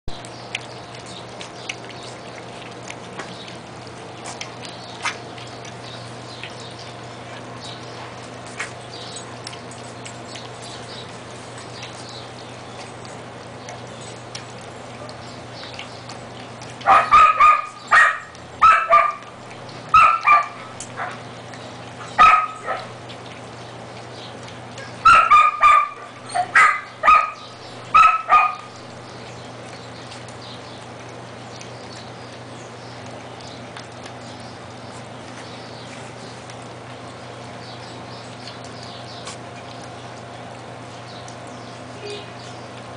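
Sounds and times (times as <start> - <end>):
puppies eating from metal pan: 0.1 - 42.9
dog barking short high barks: 16.9 - 19.2, 25.0 - 27.4.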